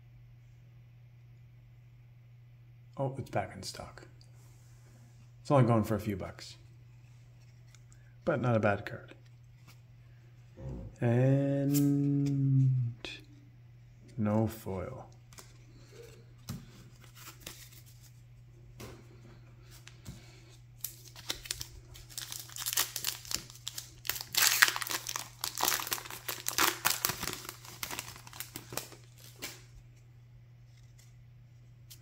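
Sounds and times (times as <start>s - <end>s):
wrapper tearing and crinkling: 20.8s - 29.7s.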